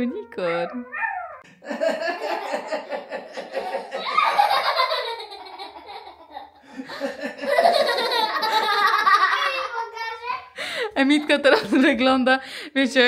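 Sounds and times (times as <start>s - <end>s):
rhythmic laughter: 1.4s - 9.8s.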